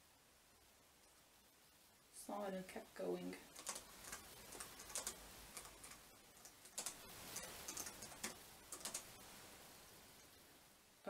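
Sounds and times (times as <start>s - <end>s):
typing on laptop keyboard: 3.5s - 9.1s.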